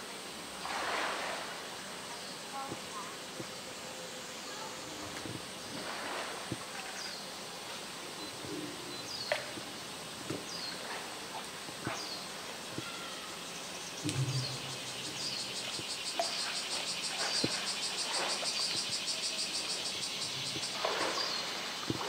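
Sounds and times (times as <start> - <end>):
cicadas buzzing: 0.0 - 22.0
water splashing: 0.4 - 3.5, 4.8 - 8.5, 14.0 - 22.0.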